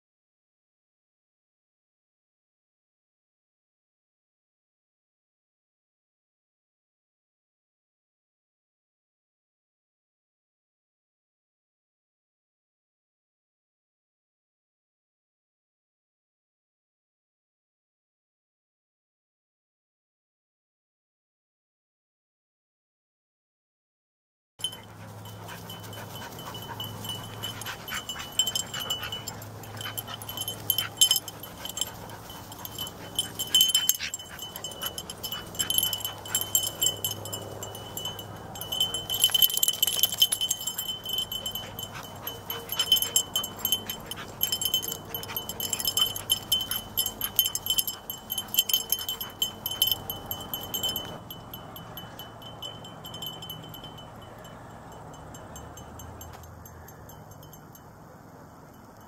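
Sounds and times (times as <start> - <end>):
dog tags jingling: 24.6 - 59.0.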